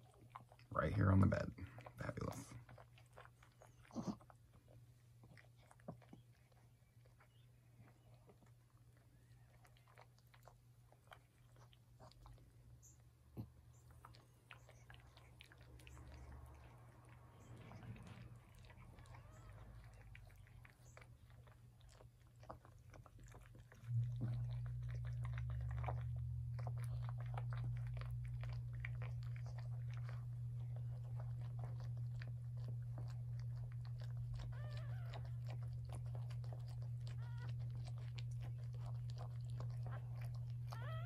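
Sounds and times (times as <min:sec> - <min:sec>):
dog licking and chewing: 0:00.0 - 0:41.0
steady low hum: 0:10.5 - 0:41.0
newborn puppy squeaks: 0:18.0 - 0:21.1, 0:34.3 - 0:37.9, 0:39.7 - 0:41.0.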